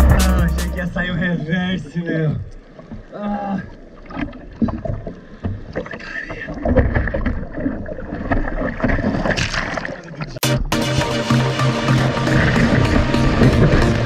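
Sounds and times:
water splashing around surfboard: 0:02.5 - 0:10.4, 0:11.0 - 0:14.0.

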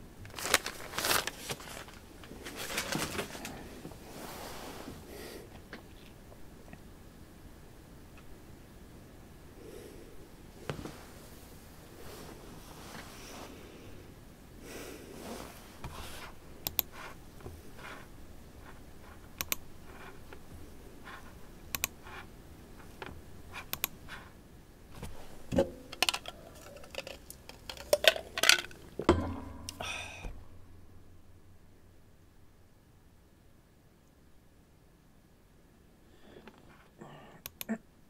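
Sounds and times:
computer mouse and keyboard clicks: 0:16.6 - 0:17.2, 0:19.2 - 0:20.4, 0:21.0 - 0:24.3.

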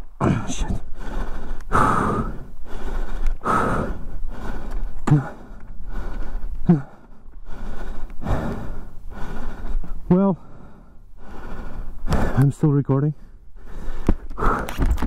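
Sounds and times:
man panting heavily: 0:00.4 - 0:15.0
voice in breaths: 0:13.1 - 0:15.0.

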